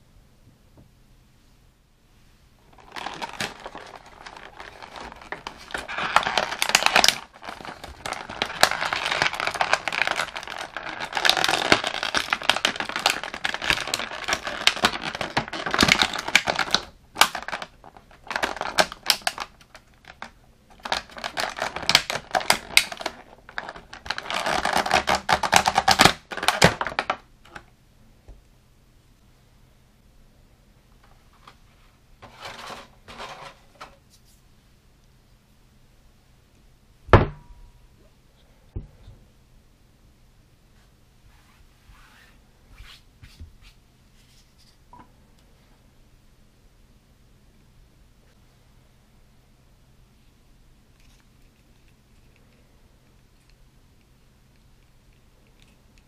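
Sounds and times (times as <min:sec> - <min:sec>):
plastic packaging crinkling: 0:02.6 - 0:27.6.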